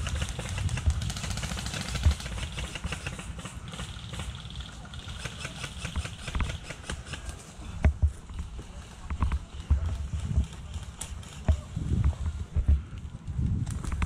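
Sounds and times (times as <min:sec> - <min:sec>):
wind rumble on microphone: 0:00.0 - 0:03.0, 0:07.6 - 0:14.0
airsoft guns firing full-auto: 0:00.0 - 0:07.4.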